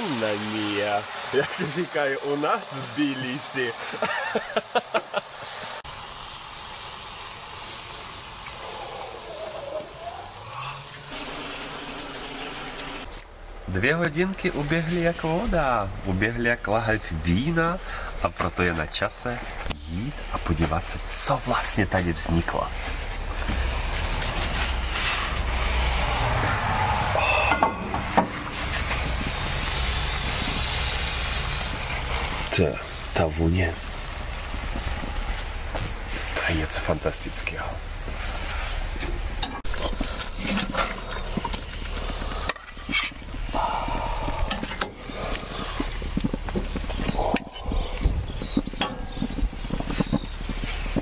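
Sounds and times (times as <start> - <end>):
stew simmering in a pot: 0.0 - 11.3, 12.4 - 36.8, 37.8 - 51.0
steady rushing noise: 13.7 - 39.4.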